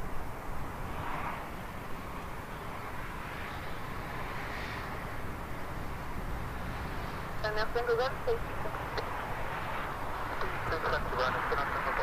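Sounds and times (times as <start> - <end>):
jet airliner engines rushing: 0.0 - 12.0.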